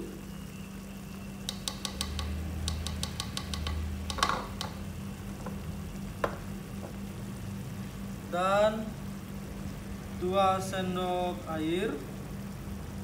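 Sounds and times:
plastic spoon clicking on glass bowl: 1.5s - 4.8s.

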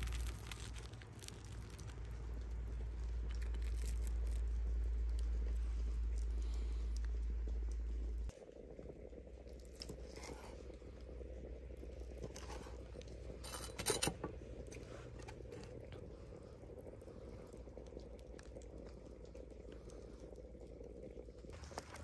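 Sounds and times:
sausage casing crunching: 0.0s - 7.9s.

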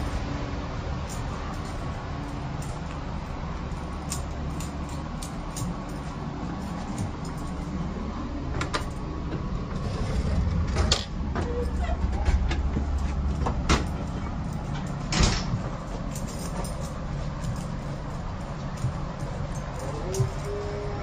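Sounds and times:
low train rumble: 0.0s - 21.0s
train door knocks and clicks: 10.6s - 16.9s.

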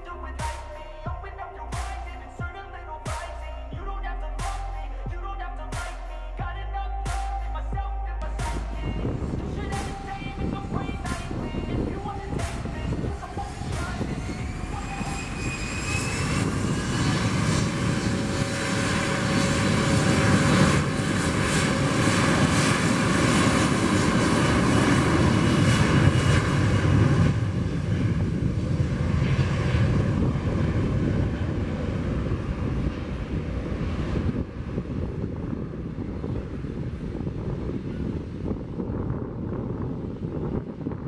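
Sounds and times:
jet engines roaring at takeoff: 8.2s - 41.0s.

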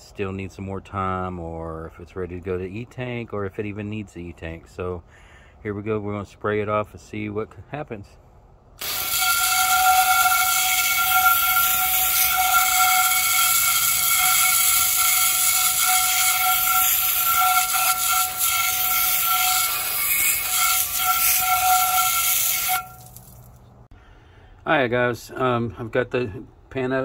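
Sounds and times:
hose spray hissing: 8.8s - 23.4s.

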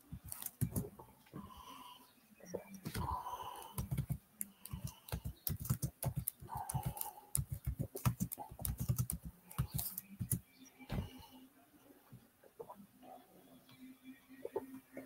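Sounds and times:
computer keyboard typing: 0.2s - 0.9s, 2.7s - 10.4s.

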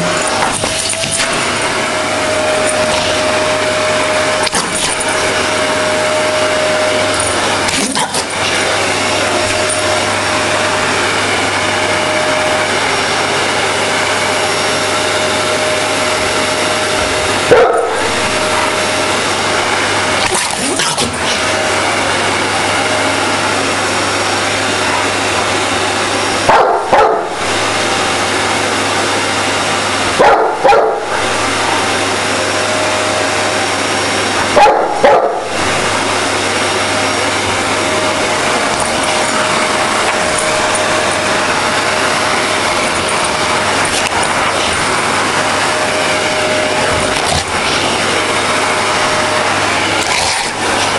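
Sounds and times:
vacuum cleaner humming: 0.0s - 50.9s
dog barking: 17.4s - 18.4s, 26.4s - 27.4s, 30.2s - 31.2s, 34.5s - 35.6s.

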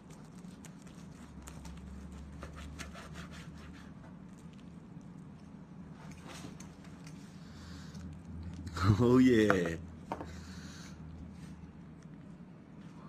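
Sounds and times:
low steady hum: 0.0s - 13.0s
knife sawing through meat: 0.9s - 4.0s.

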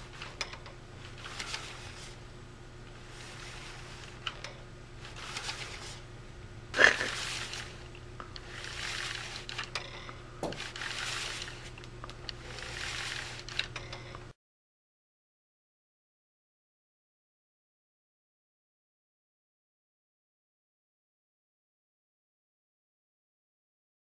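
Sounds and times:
steady low hum: 0.0s - 14.4s
small clicks: 13.4s - 14.3s.

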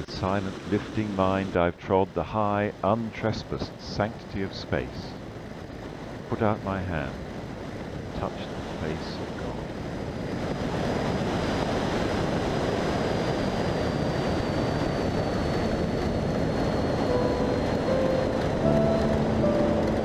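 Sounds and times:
airplane engine running: 0.0s - 20.0s
wind rush: 7.0s - 20.0s.

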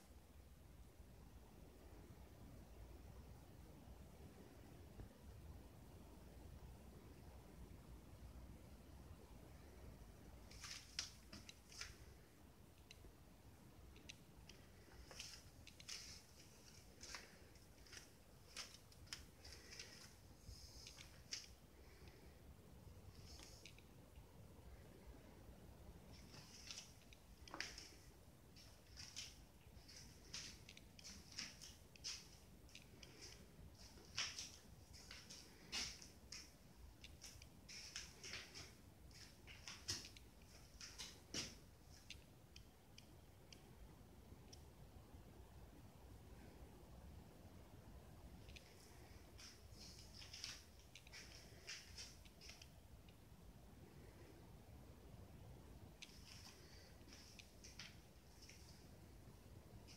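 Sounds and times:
light irregular clicks: 13.8s - 22.3s, 26.0s - 45.1s, 48.2s - 54.8s.

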